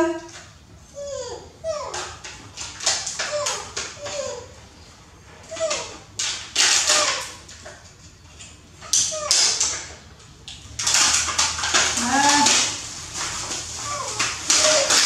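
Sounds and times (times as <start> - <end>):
plastic crinkling: 5.5 - 15.0.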